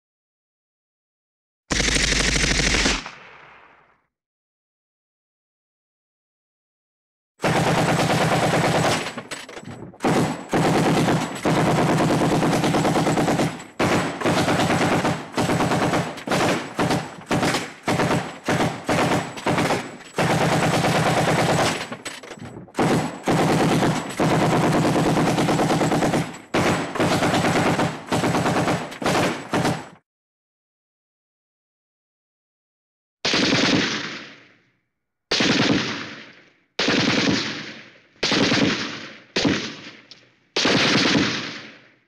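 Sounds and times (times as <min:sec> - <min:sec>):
machine gun bursts: 0:01.7 - 0:03.1, 0:07.4 - 0:29.9.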